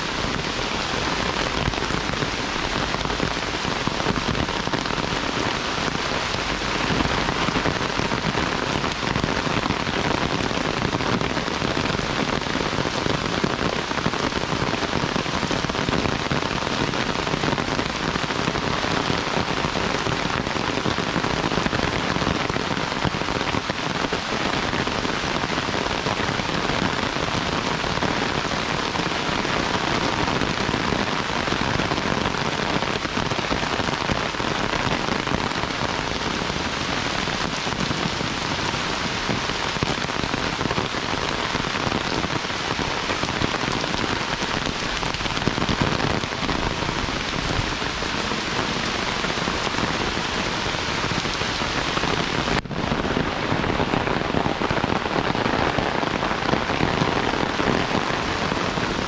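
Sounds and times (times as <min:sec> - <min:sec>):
heavy rain falling: 0:00.0 - 0:59.0.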